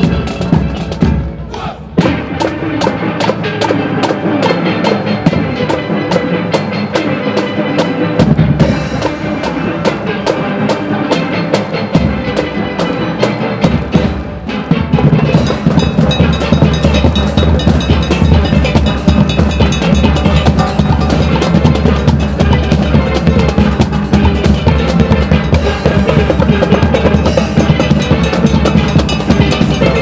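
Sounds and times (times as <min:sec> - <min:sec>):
drums keeping a quick beat: 0:00.0 - 0:30.0
steel pans playing a tune: 0:02.3 - 0:30.0
bass: 0:03.7 - 0:30.0.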